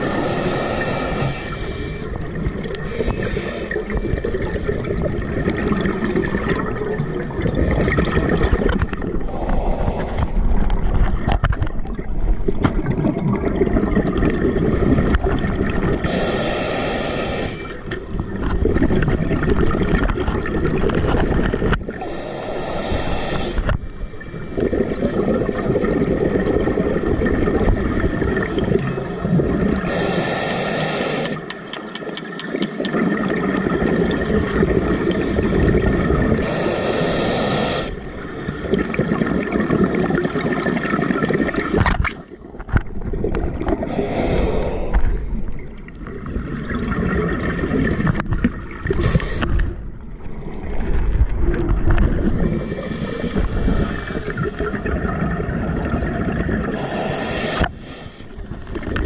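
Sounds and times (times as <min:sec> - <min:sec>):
regulator breath hissing: 0:00.0 - 0:02.1, 0:02.8 - 0:03.9, 0:09.2 - 0:10.4, 0:16.0 - 0:17.7, 0:22.0 - 0:24.1, 0:29.9 - 0:31.5, 0:36.4 - 0:38.6, 0:43.9 - 0:45.4, 0:52.5 - 0:54.4, 0:56.7 - 0:58.4
gurgling exhaled bubbles: 0:00.0 - 0:16.4, 0:17.2 - 0:30.2, 0:32.5 - 0:59.0.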